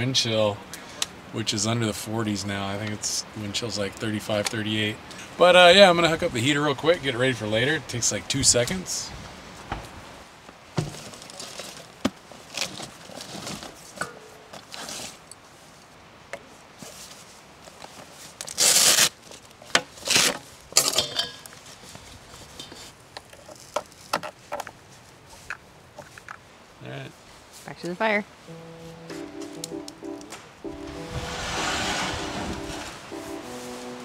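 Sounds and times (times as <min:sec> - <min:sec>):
loud rushes of noise: 0:30.4 - 0:33.9.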